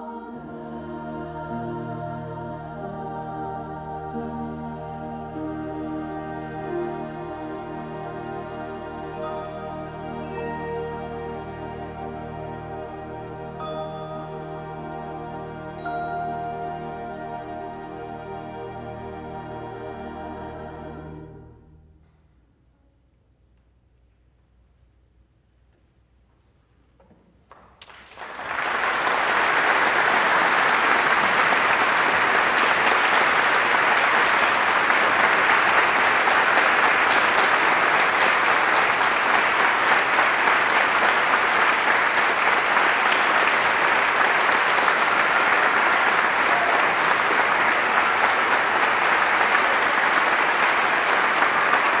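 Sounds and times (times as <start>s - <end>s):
audience applauding: 27.5s - 52.0s.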